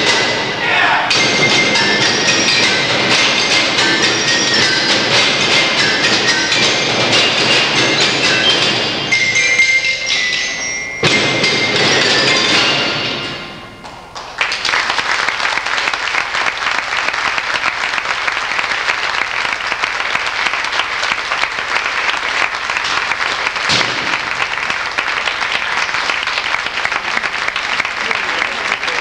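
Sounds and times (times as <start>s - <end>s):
percussion ensemble ringing notes: 0.0s - 15.1s
audience applause: 13.8s - 29.0s
loud sharp bang: 23.6s - 24.6s.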